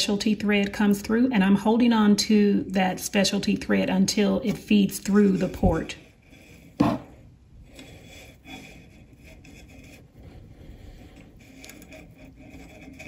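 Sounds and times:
low steady hum: 0.0 - 13.0
thread scraping and handling: 4.2 - 13.0.

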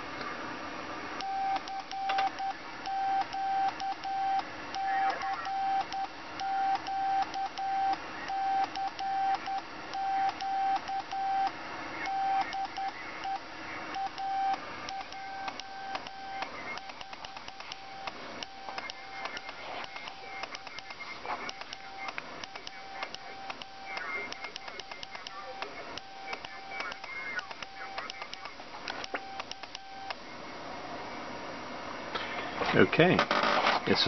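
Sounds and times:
morse code sidetone beeping: 1.2 - 28.4.

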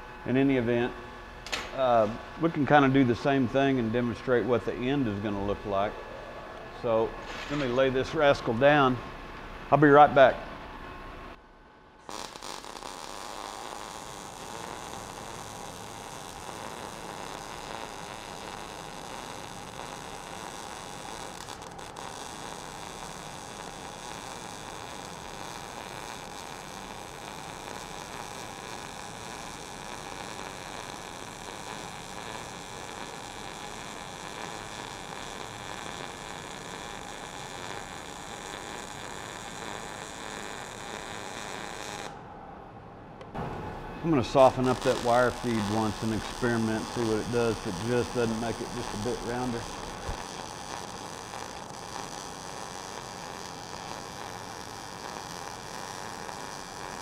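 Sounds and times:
welding arc: 0.0 - 5.9, 6.8 - 9.0, 12.0 - 42.2, 43.4 - 57.0.

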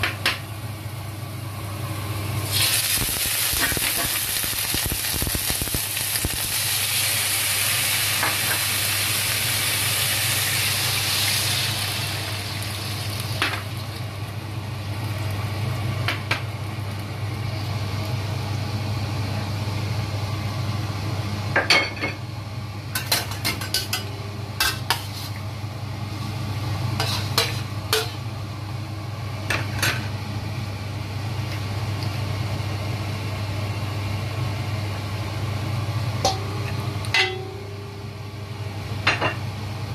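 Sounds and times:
steady low hum: 0.0 - 39.9
food sizzling in hot oil: 2.3 - 18.2, 26.7 - 28.3
utensil scraping a wok: 23.1 - 25.4, 27.0 - 28.2.

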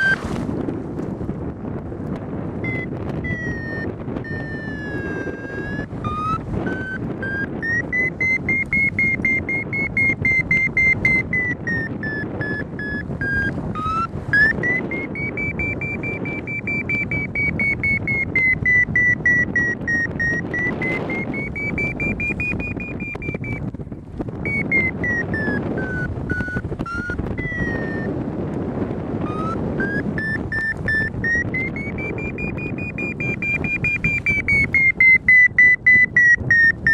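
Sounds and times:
wind rush on microphone: 0.0 - 36.9
rapid high beeping: 2.6 - 23.7, 24.4 - 28.1, 29.2 - 36.9.

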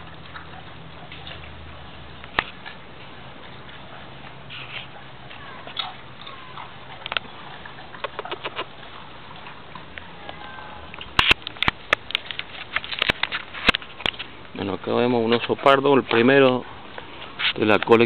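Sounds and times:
sharp clicks and knocks: 11.0 - 14.3.

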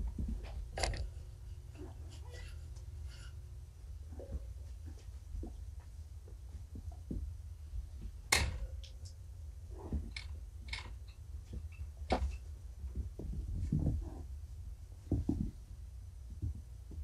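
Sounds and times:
steady low hum: 0.0 - 17.0
soft thumps of kittens playing: 11.4 - 14.3, 15.0 - 17.0.

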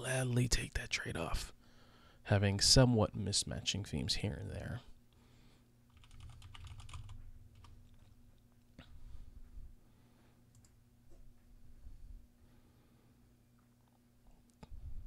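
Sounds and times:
faint low hum: 0.0 - 15.0
keyboard typing: 5.9 - 8.2.

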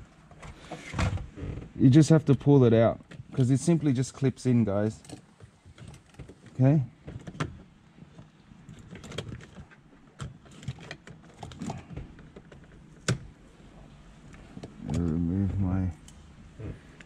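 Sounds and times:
plastic parts clicking and rattling: 4.9 - 13.2.

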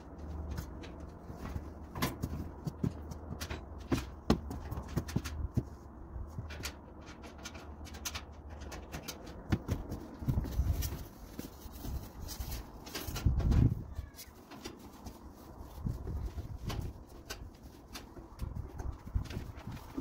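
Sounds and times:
steady low rumble: 0.0 - 14.0
parts clicking and rustling: 0.0 - 20.0.

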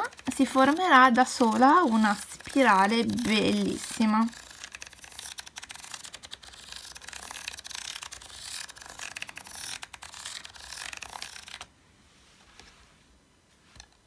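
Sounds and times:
marker scratching on paper: 0.1 - 11.4.

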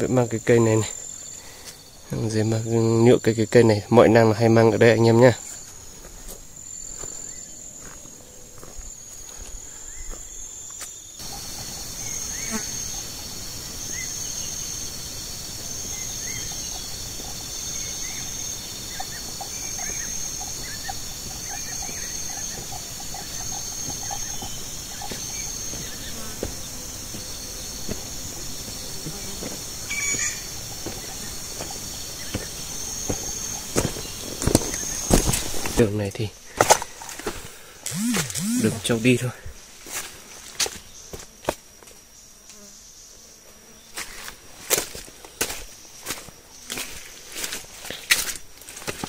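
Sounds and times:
faint chirps: 0.0 - 36.3
high-pitched pulsing insect call: 0.0 - 49.0
insect drone: 0.0 - 49.0.

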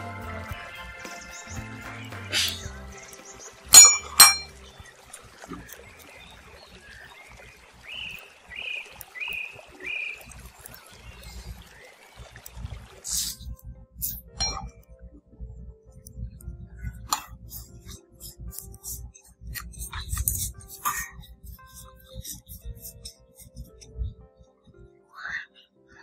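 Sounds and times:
metallic clinks on metal bowl: 3.7 - 4.6, 14.4 - 14.7.

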